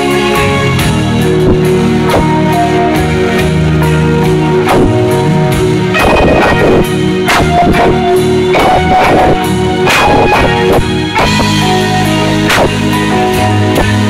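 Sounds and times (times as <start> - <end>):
drum and cymbal hits: 0.0 - 14.0
electric guitar: 0.0 - 14.0.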